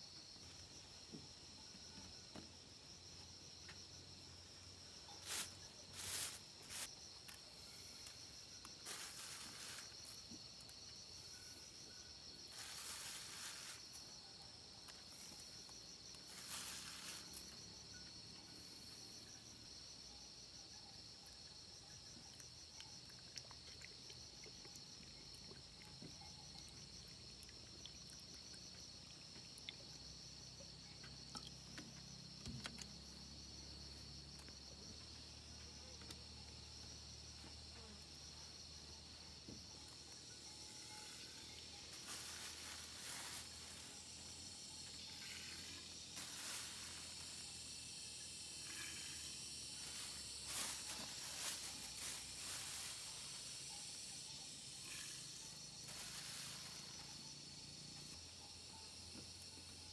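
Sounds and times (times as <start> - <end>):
insects chirring: 0.0 - 59.9
rice rustling in plastic bag: 12.5 - 13.8, 41.9 - 44.0, 46.2 - 47.4, 49.8 - 53.5, 55.9 - 56.8.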